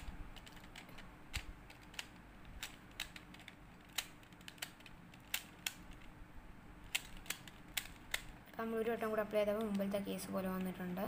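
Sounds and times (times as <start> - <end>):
plastic puzzle clicks: 0.0 - 6.1, 6.9 - 8.3.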